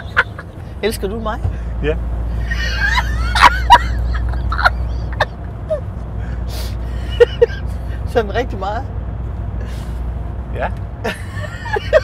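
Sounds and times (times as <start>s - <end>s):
woman and man laughing: 0.0s - 0.6s, 2.4s - 5.9s, 6.9s - 7.8s, 11.1s - 12.0s
car engine and road rumble: 0.0s - 12.0s.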